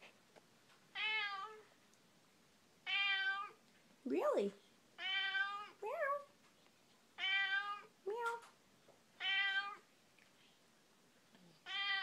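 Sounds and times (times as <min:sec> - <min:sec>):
cat meowing: 0:00.9 - 0:01.7, 0:02.8 - 0:03.6, 0:05.0 - 0:06.2, 0:07.2 - 0:07.9, 0:09.2 - 0:09.8, 0:11.6 - 0:12.0.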